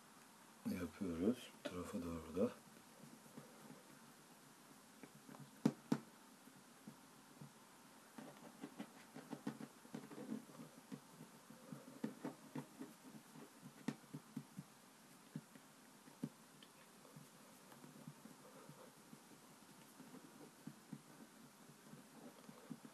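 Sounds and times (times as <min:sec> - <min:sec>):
hands smoothing play dough on wood: 0:08.1 - 0:22.9.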